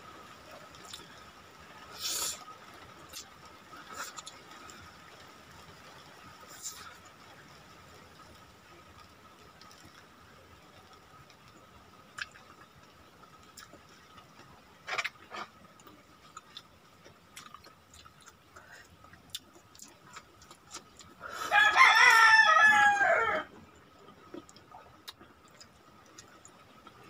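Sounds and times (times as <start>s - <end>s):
person eating with hands: 3.1s - 4.4s, 13.4s - 21.8s, 24.1s - 27.0s
rooster crowing: 21.4s - 23.5s.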